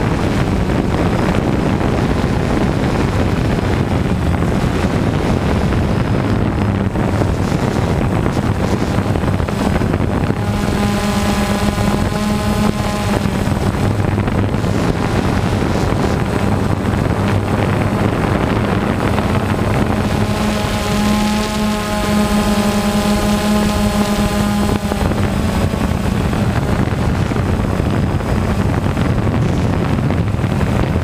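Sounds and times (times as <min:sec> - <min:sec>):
drone propellers buzzing: 0:00.0 - 0:31.0
high motor whine: 0:00.0 - 0:31.0
wind on microphone: 0:00.0 - 0:31.0.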